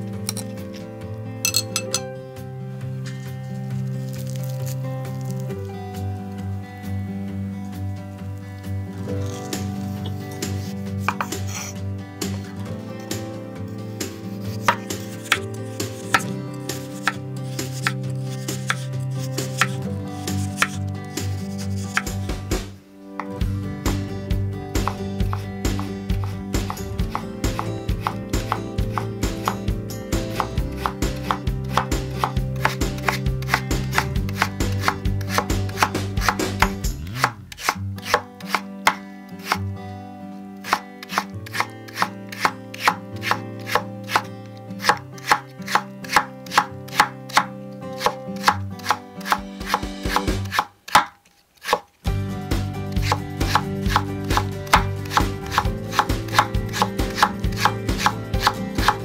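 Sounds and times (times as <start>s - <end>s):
cleaver chopping on wooden board: 11.0s - 11.7s, 14.6s - 16.3s, 16.9s - 19.8s, 20.4s - 20.8s, 21.8s - 22.2s, 24.8s - 29.7s, 30.3s - 39.6s, 40.6s - 51.9s, 53.0s - 59.0s.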